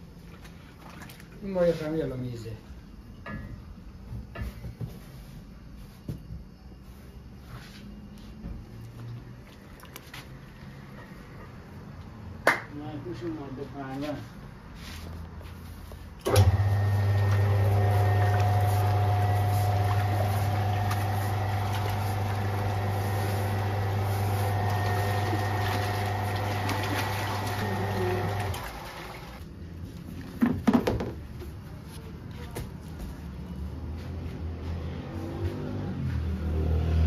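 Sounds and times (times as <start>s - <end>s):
dough mixer motor humming: 16.3s - 29.3s.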